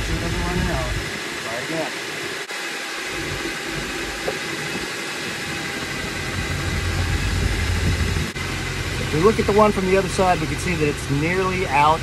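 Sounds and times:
low rumble: 0.0 - 1.3, 3.1 - 12.0.

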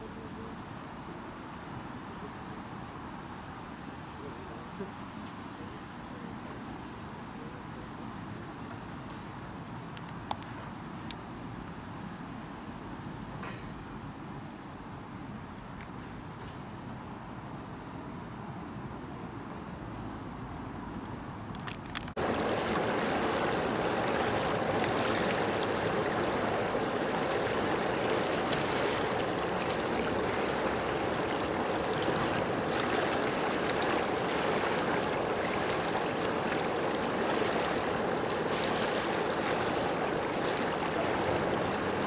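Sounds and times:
faint outdoor ambience: 0.0 - 42.0
running water rushing: 22.2 - 42.0.

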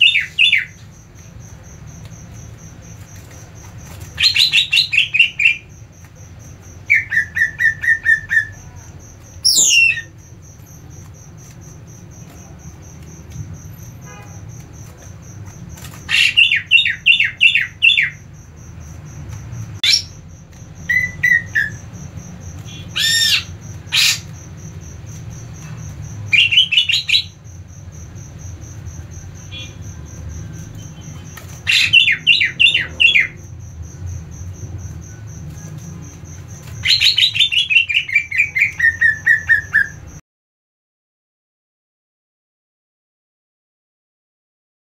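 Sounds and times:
bird calling in fast bursts: 0.0 - 10.5, 16.0 - 18.4, 19.8 - 25.0, 26.2 - 27.7, 30.8 - 33.6, 36.5 - 40.1.

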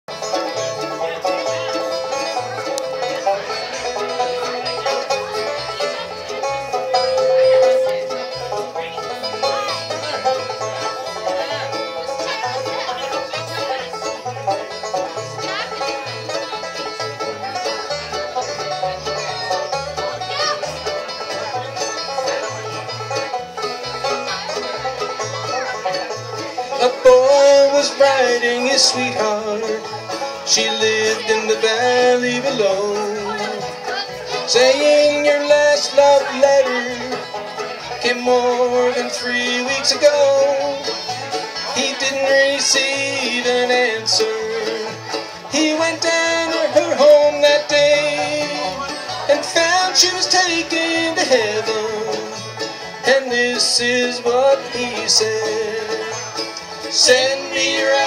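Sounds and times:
bluegrass band playing: 0.0 - 58.0.

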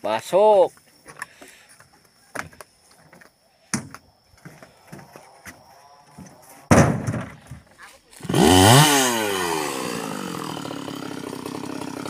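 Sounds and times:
heavy thud: 6.7 - 7.7
logs knocking on wooden truck bed: 6.7 - 7.7.

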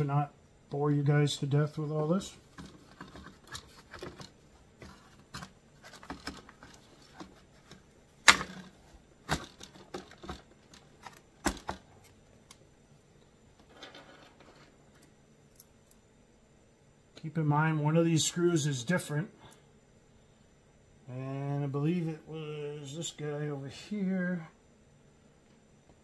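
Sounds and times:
plastic parts and tools knocking: 2.5 - 11.9.

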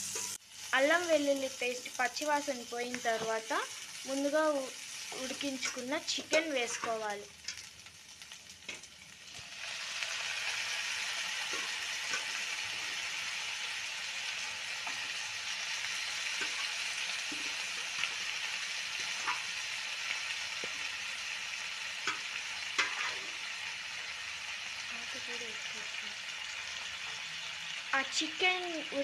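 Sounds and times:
chicken sizzling in hot oil: 0.0 - 29.0
wooden spatula tapping and scraping: 5.6 - 7.7.

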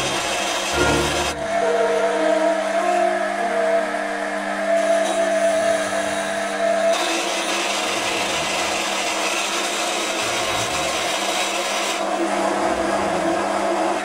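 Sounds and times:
drill cutting steel hissing: 0.0 - 1.4, 4.8 - 12.1
lathe humming: 0.0 - 14.0.

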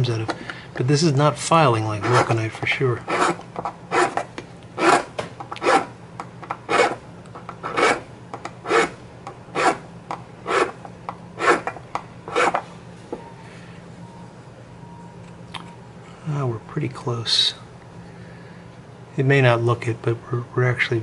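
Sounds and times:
hand file rasping on plastic: 3.1 - 4.2, 4.8 - 5.9, 7.6 - 8.0, 8.7 - 9.0, 10.5 - 10.8, 11.4 - 12.6.

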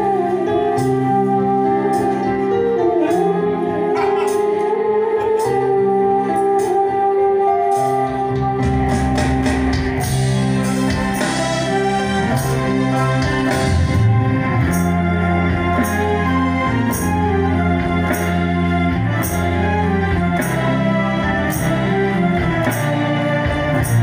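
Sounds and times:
bamboo flute melody: 0.0 - 9.2
live instrumental band music: 0.0 - 24.0.

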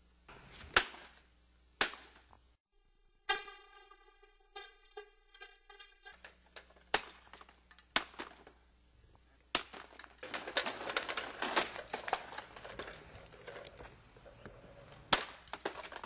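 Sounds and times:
sharp hard knocks: 1.8 - 2.3.

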